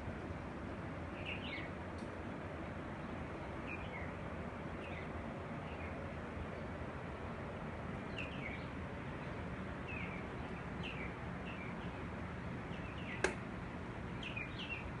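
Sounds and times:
outdoor background hiss: 0.0 - 15.0
bird chirping: 1.2 - 1.7, 3.6 - 4.1, 4.8 - 6.0, 8.1 - 12.1, 12.7 - 13.4, 14.1 - 15.0
sharp click: 13.2 - 13.4.

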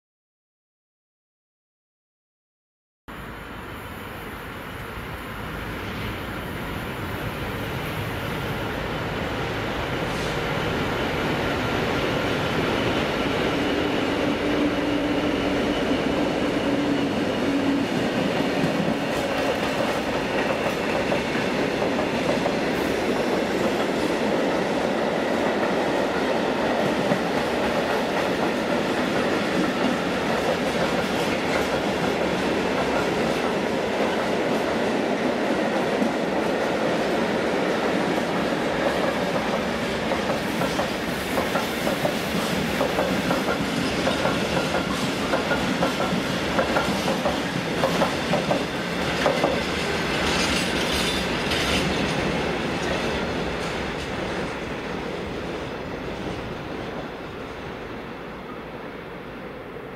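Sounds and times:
train wheels clicking over rail joints: 38.0 - 54.7.

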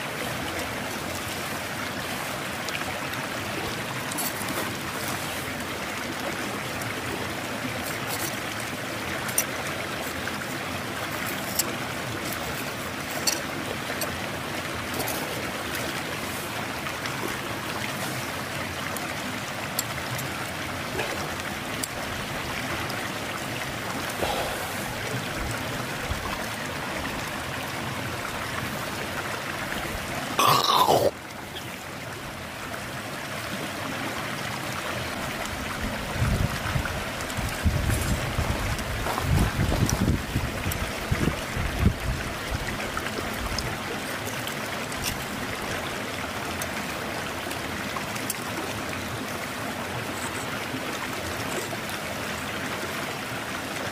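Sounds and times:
river stream rushing: 0.0 - 53.9.

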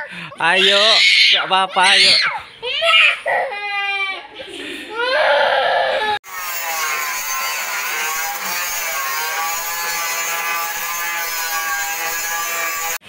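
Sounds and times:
angle grinder whine: 6.3 - 13.0.

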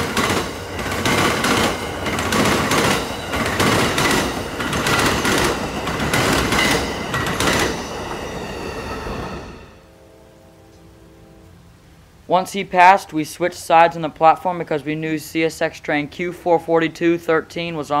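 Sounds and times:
train wheels clacking: 0.0 - 9.8
train rolling roar: 0.0 - 13.9.

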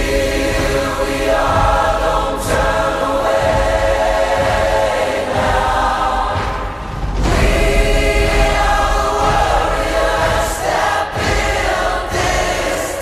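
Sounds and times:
choir singing held chords: 0.0 - 13.0.

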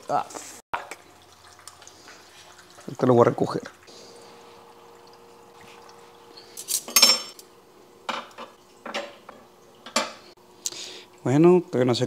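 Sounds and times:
faint steady hum: 0.8 - 12.0
metal tools clattering on table: 6.5 - 7.4.

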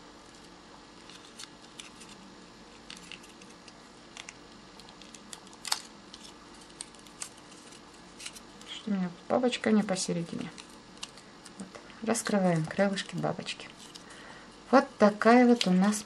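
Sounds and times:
folded paper crinkling: 0.3 - 8.9.

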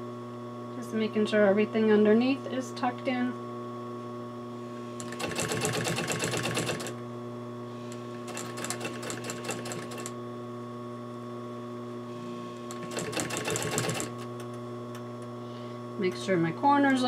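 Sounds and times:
sewing machine needle rattling: 5.0 - 6.9, 8.3 - 10.1, 12.7 - 14.5
sewing machine hum: 5.0 - 7.0, 7.7 - 10.2, 12.1 - 14.5.

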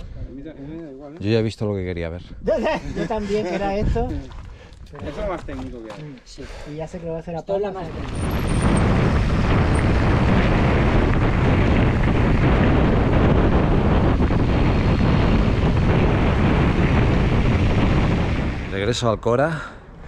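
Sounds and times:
wind buffeting microphone: 0.0 - 6.0, 7.5 - 20.0
tyre noise on trail: 7.8 - 18.8.

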